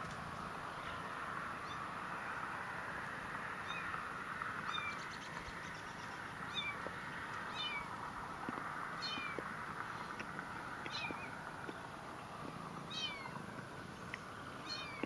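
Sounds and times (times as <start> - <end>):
kittens mewing: 9.0 - 9.5, 10.9 - 11.4, 12.8 - 13.4, 14.6 - 15.0.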